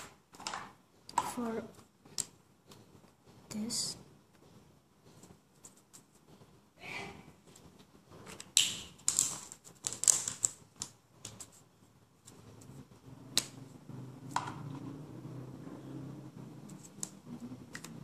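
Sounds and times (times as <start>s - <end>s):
paper rustling: 7.6s - 12.8s
pen clicks: 8.3s - 11.6s, 16.6s - 18.0s.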